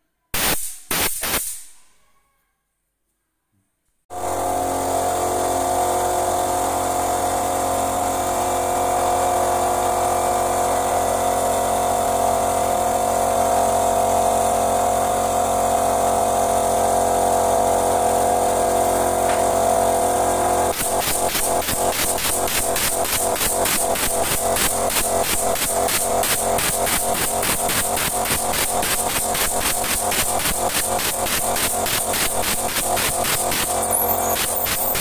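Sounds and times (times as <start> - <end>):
air hissing: 0.4 - 1.8, 20.8 - 35.0
air compressor running: 4.1 - 35.0.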